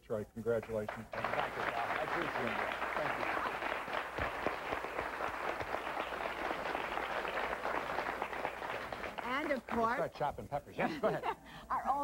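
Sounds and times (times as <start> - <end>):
audience applauding: 0.6 - 10.1.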